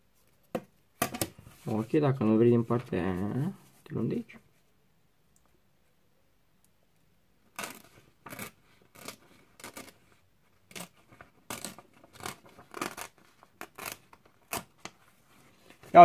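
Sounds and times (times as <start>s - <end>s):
paper tearing: 7.5s - 14.9s.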